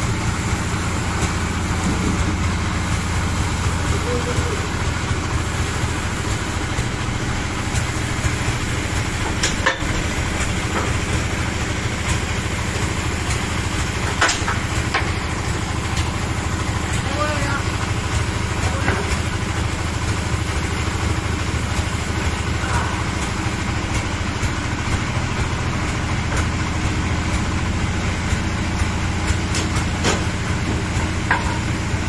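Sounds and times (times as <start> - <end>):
bandsaw mill humming: 0.0 - 32.0
sharp metal knocks: 9.2 - 11.2, 29.5 - 31.8.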